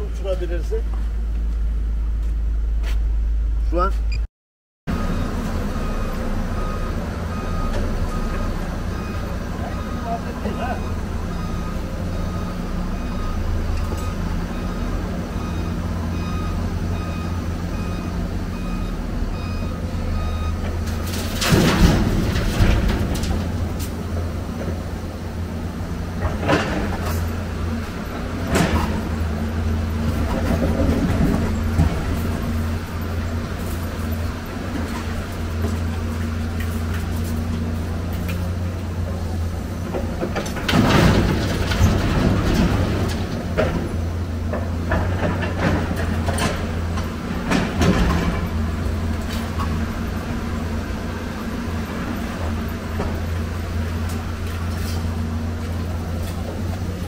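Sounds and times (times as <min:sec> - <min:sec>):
reversing alarm beeping: 0:04.9 - 0:20.6
diesel engine running: 0:04.9 - 0:57.0
scrap metal crashing: 0:20.9 - 0:23.8, 0:40.5 - 0:44.0.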